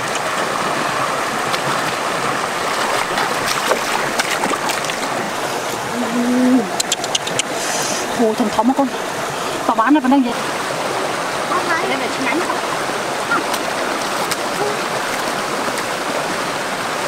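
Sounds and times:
stream rushing over rapids: 0.0s - 17.0s
quick sharp clicks: 6.8s - 7.6s.

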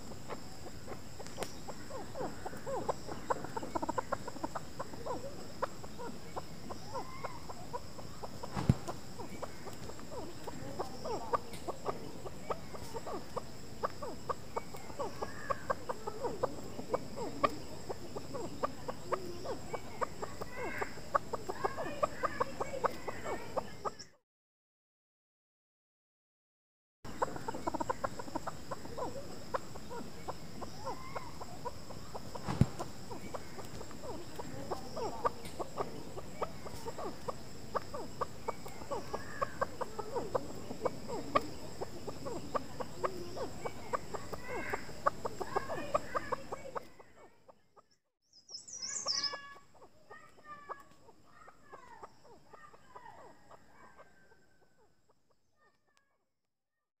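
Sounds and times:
partridge clucking: 2.5s - 24.0s.

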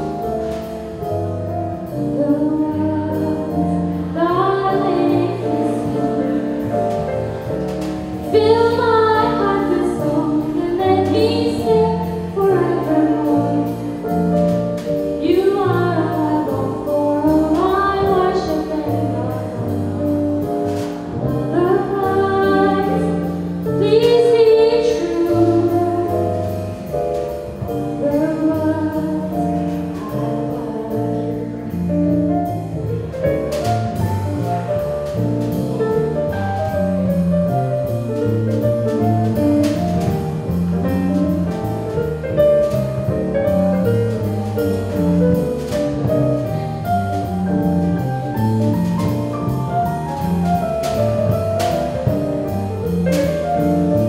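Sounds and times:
jazz band playing: 0.0s - 54.0s
walking bass line: 0.0s - 54.0s
woman singing: 2.2s - 6.4s, 8.3s - 13.8s, 15.2s - 19.8s, 21.5s - 26.4s, 28.0s - 31.8s.

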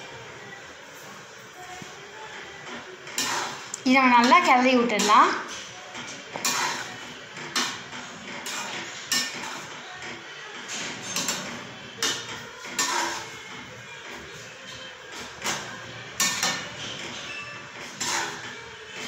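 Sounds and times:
metal spatula scraping pan: 3.0s - 13.5s, 14.2s - 19.0s.

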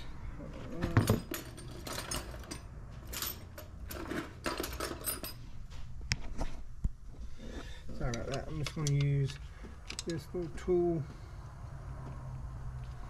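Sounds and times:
metal tools clinking: 0.6s - 5.5s, 8.0s - 10.3s.

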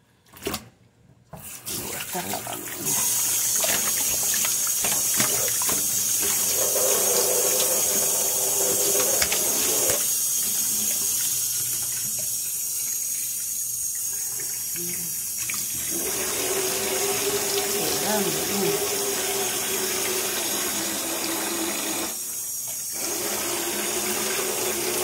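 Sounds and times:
tap water running into sink: 1.3s - 25.0s.

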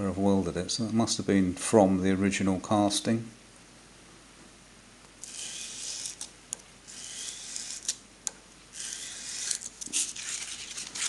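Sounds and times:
metal part rubbing on abrasive cloth: 5.2s - 6.3s, 6.9s - 8.0s, 8.8s - 11.0s.

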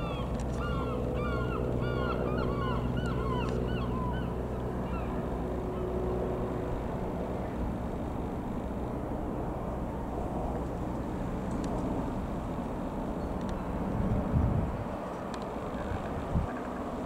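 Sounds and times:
birds calling: 0.0s - 5.2s
small plane engine drone: 0.0s - 17.0s.

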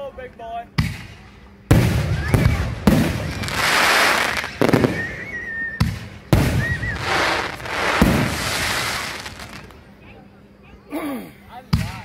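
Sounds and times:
fireworks bangs: 1.7s - 9.8s
fireworks crackling hiss: 1.7s - 9.9s
high wavering whistle: 3.9s - 8.4s.

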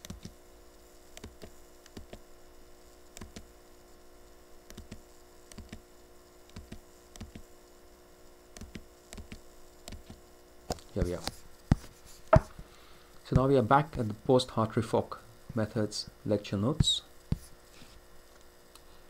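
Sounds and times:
mouse and keyboard clicks: 0.0s - 0.4s, 1.2s - 2.2s, 3.2s - 3.5s, 4.7s - 5.8s, 6.5s - 7.5s, 8.6s - 10.2s
electrical hum: 0.0s - 19.0s.

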